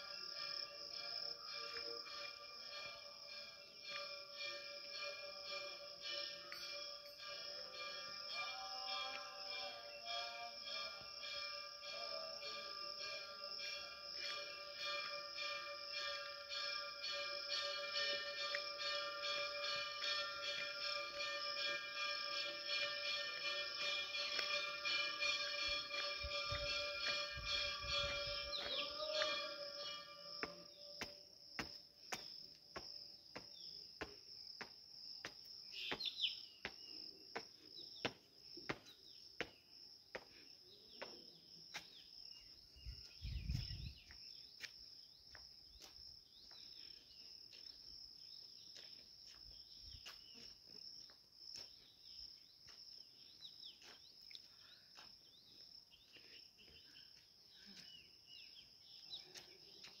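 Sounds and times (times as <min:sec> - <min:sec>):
insects chorus: 0:00.0 - 1:00.0
birds chirping: 0:23.7 - 0:31.0, 0:35.7 - 0:37.2
footsteps tapping: 0:24.2 - 0:29.6, 0:30.4 - 0:40.4.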